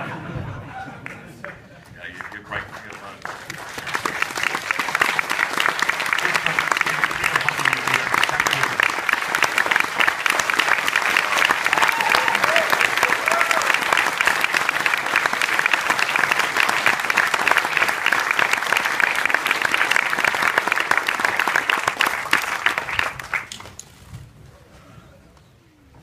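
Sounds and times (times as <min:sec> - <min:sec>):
audience applauding: 0:01.0 - 0:23.8.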